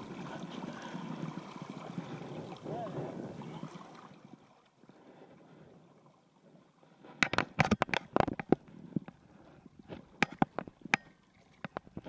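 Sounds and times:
water splashes and slaps: 0.0 - 4.8.

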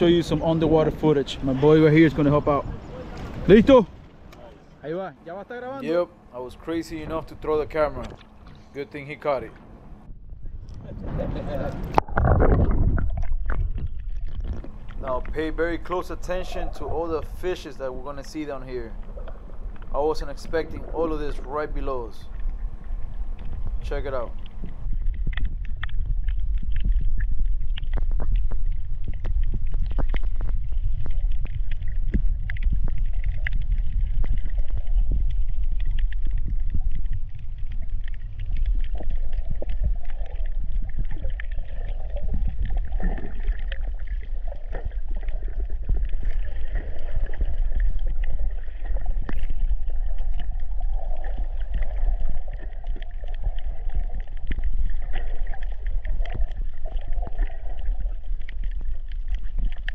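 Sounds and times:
underwater rumble of moving water: 0.0 - 59.9
sharp crackling clicks: 18.1 - 20.6, 21.8 - 59.9.

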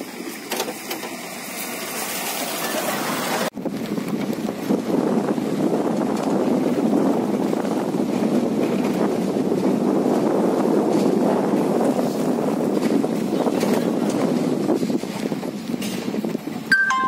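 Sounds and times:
vehicle running noise: 0.0 - 17.0
wind buffeting microphone: 3.5 - 16.8.

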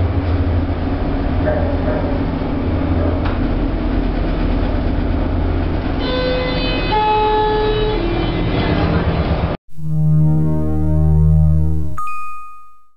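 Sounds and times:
low machinery drone: 0.0 - 12.0
three-note descending chime: 9.8 - 12.9.

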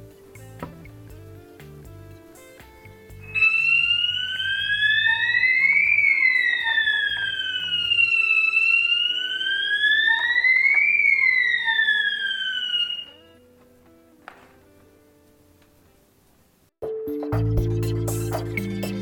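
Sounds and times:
quiet background music: 0.0 - 19.0
electronic wailing siren: 3.2 - 13.4.

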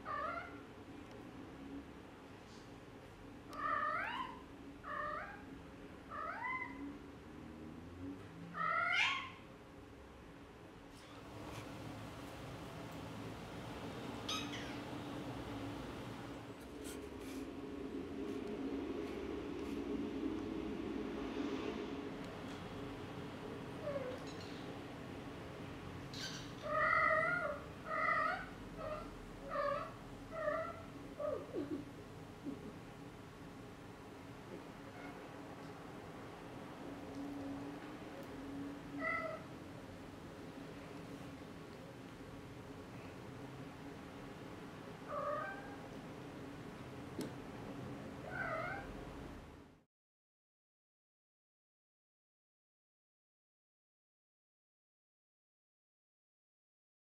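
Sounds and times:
cat meowing: 3.6 - 5.4, 8.6 - 9.4, 14.2 - 14.9, 26.2 - 31.8, 39.0 - 39.5, 45.1 - 45.8, 48.2 - 48.9.

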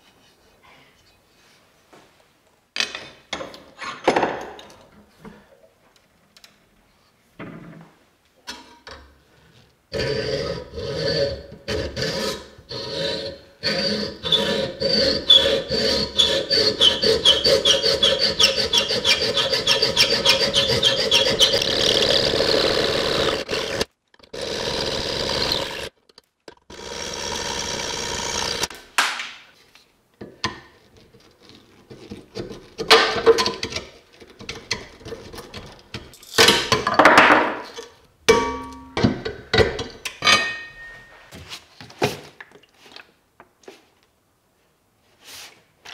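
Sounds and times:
hand tool rasping wooden handle: 9.9 - 25.9.

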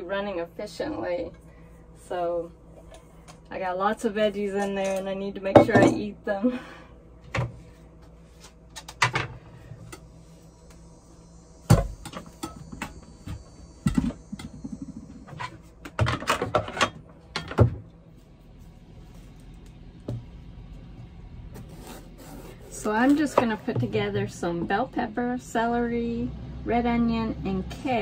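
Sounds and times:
faint hum: 0.0 - 28.0
kitchen items knocking and clattering: 13.8 - 17.8.

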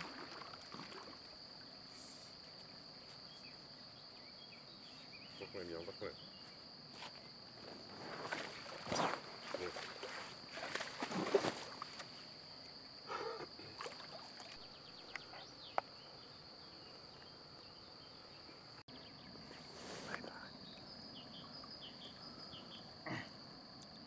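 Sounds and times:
water splashing and rustling: 0.0 - 3.0, 6.8 - 15.0.

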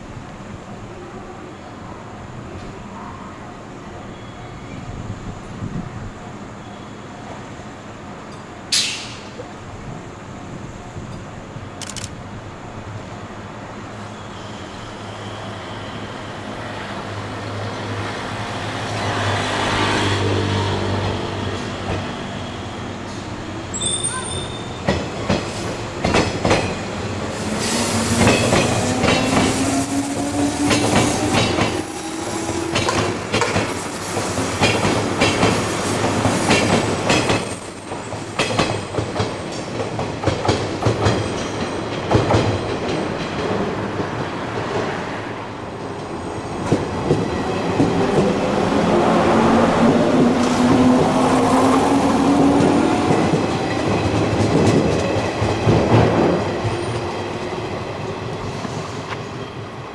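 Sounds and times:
faint wheel squeal: 14.0 - 16.4.

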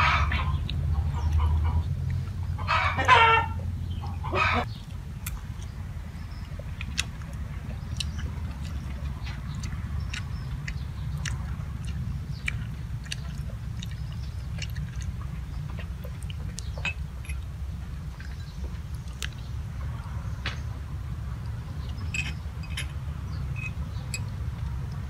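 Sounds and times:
steady low hum: 0.0 - 25.0
person chewing: 4.8 - 19.5
metal spoon clicking in bowls: 22.0 - 23.0, 23.6 - 24.4.

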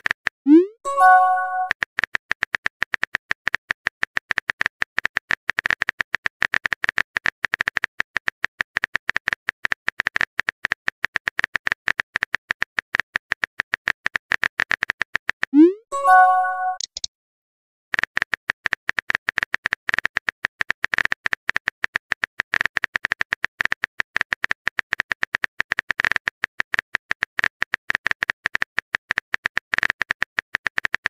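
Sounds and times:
rapid keyboard typing clicks: 16.8 - 17.1.

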